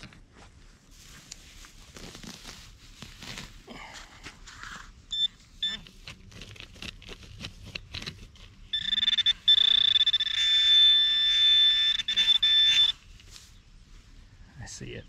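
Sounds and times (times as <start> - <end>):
probe scratching in soil: 0.8 - 13.6
metal detector high-pitched tone: 5.1 - 5.9, 8.7 - 13.1.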